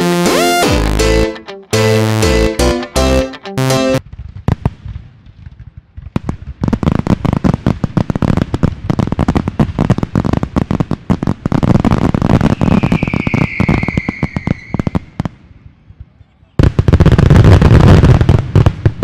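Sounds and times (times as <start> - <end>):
fireworks crackling and banging: 4.0 - 19.0
high firework whistle: 12.4 - 15.2.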